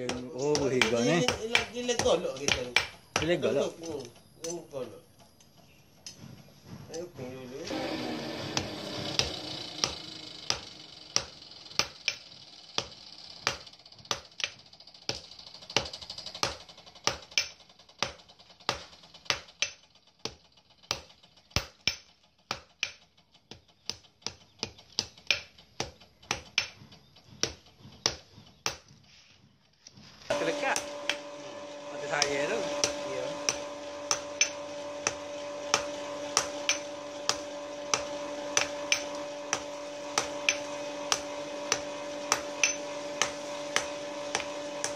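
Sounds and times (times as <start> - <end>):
steady hum: 7.1 - 14.3, 30.3 - 44.9
hammer ringing on hot iron: 7.7 - 12.2, 30.3 - 44.9.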